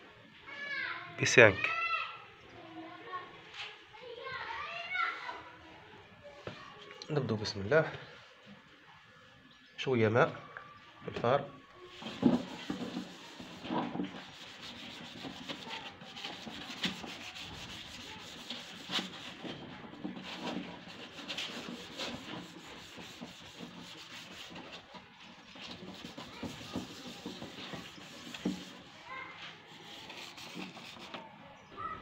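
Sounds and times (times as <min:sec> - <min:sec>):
sandpaper wet-sanding: 0:11.9 - 0:29.0, 0:29.6 - 0:31.2.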